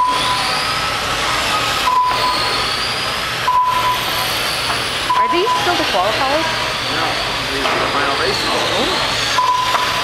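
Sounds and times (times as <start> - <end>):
electric motor whines: 0.0 - 10.0
rc cars hissing: 0.0 - 10.0
short beeps: 1.8 - 2.5, 3.5 - 4.1, 5.1 - 5.8, 9.4 - 10.0.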